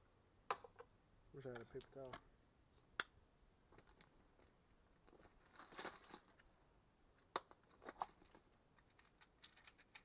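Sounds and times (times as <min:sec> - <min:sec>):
plastic parts rustling: 0:05.1 - 0:06.4, 0:07.6 - 0:10.0.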